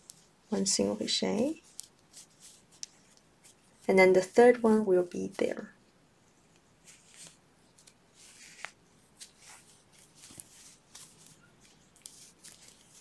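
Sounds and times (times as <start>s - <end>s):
crochet hook working yarn: 0.0s - 3.9s, 6.8s - 13.0s.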